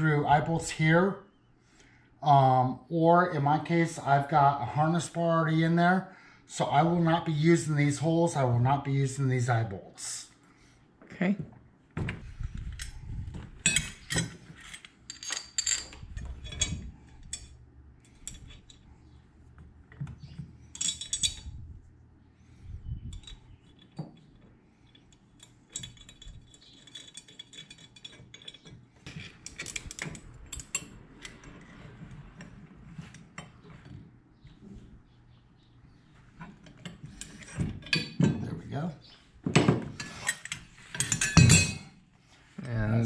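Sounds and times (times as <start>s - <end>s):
metal fittings and tools clinking: 13.6s - 18.9s, 20.6s - 21.6s, 23.1s - 31.4s, 39.9s - 41.9s.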